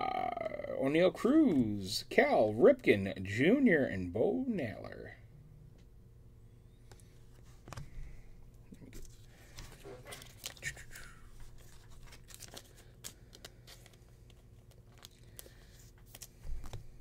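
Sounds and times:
cards and wrappers rustling: 8.8 - 17.0.

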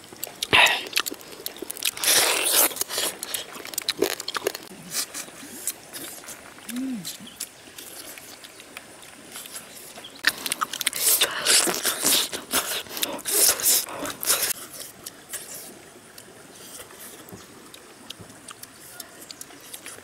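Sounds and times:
chewing and lip-smacking: 0.0 - 20.0
crunchy clicks: 0.2 - 4.7.

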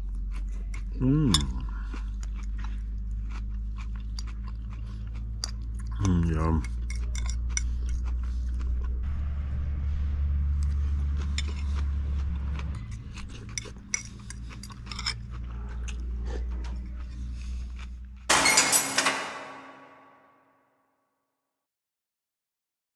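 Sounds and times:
chewing: 0.0 - 9.1, 10.4 - 18.3
fork scraping ceramic bowl: 6.6 - 8.0, 12.9 - 15.3.

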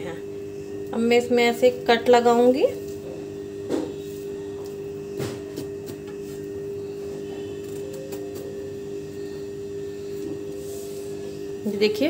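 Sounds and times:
steady humming tone: 0.0 - 12.0.

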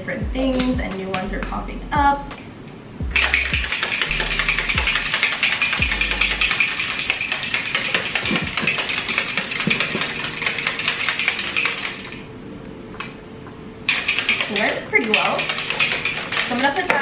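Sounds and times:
plastic shaker bottle rattling: 3.2 - 12.2, 13.9 - 16.6.

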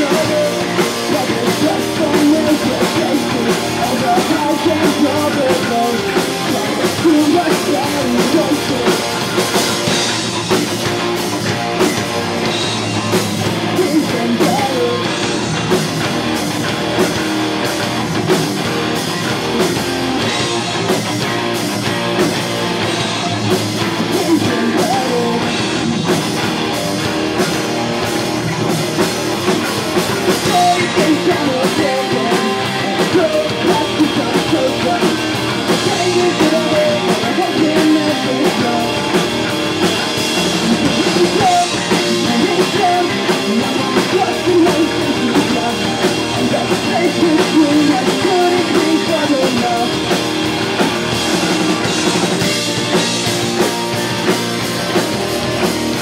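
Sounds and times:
drum kit: 0.0 - 56.0
electric guitars: 0.0 - 56.0
live pop-punk rock band: 0.0 - 56.0.

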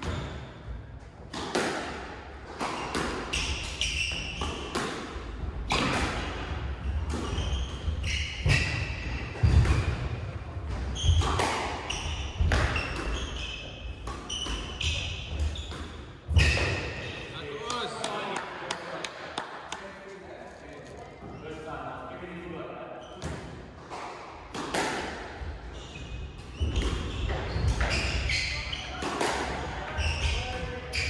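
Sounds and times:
squash ball smacking rackets and walls: 0.0 - 17.0, 23.2 - 31.0.

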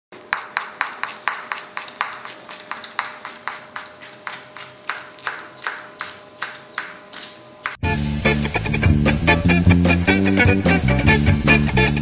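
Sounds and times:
knife chopping on cutting board: 0.2 - 7.8.

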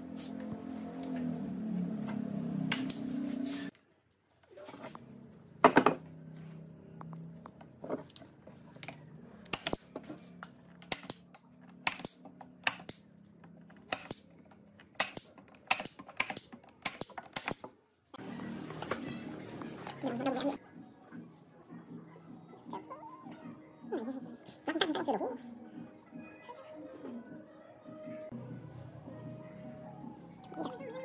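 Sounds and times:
staple gun snapping: 10.8 - 13.0, 13.9 - 14.3, 15.0 - 17.6.

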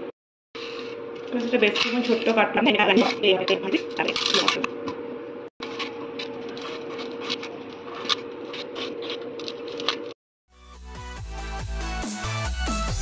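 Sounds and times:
music: 10.5 - 13.0.

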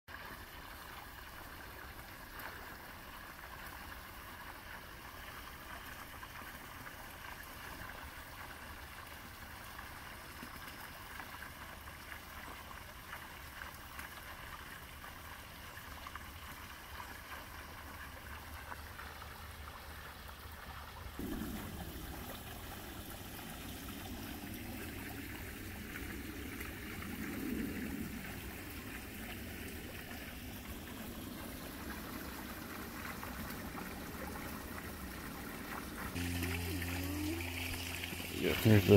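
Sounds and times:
water trickling: 0.1 - 38.9
low rumbling noise: 21.2 - 29.3, 36.1 - 38.9.

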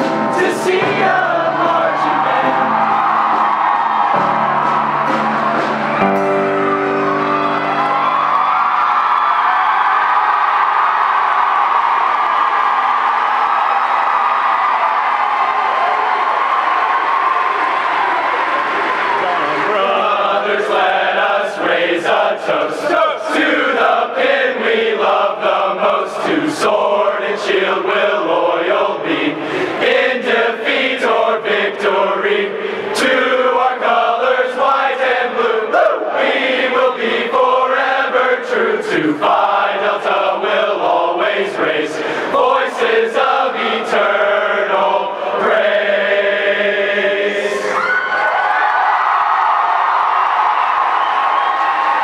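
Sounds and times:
men's choir singing: 0.0 - 4.6, 19.6 - 47.8.

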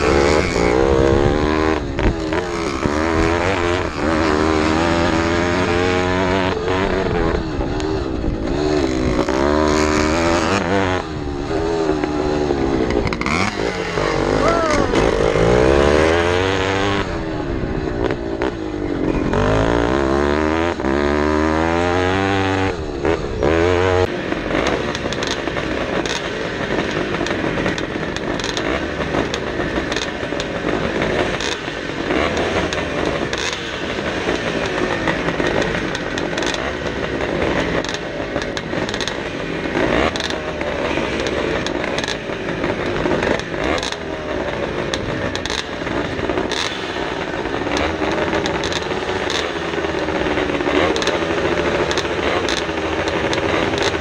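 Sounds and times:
motocross bike engine revving: 0.0 - 54.0
several motocross bikes running: 0.0 - 54.0.

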